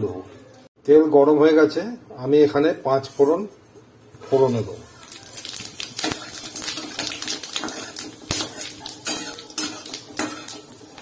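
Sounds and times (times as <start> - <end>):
seeds frying in hot oil: 4.5 - 11.0
metal spatula scraping a pan: 6.0 - 11.0.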